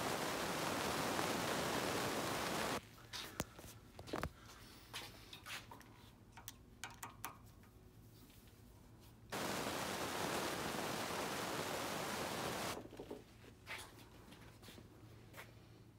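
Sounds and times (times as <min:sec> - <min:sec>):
loud steady hiss: 0:00.0 - 0:02.8, 0:09.3 - 0:12.8.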